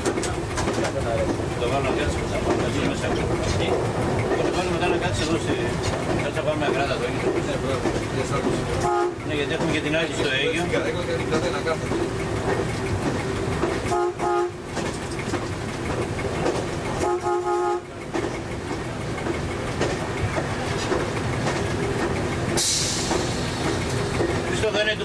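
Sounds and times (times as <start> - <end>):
diesel railcar running on track: 0.0 - 25.0
train horn blasts: 8.8 - 9.3, 13.9 - 14.7, 17.0 - 18.0
sharp hiss: 22.6 - 24.3.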